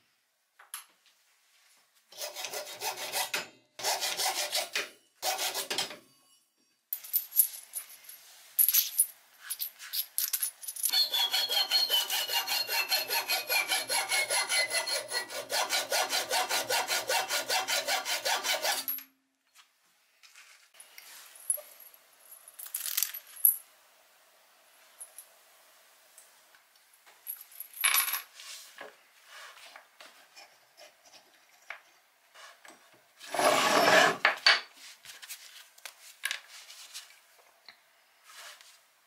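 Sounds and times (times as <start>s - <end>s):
metal pieces clinking: 6.9s - 10.9s, 21.4s - 23.6s.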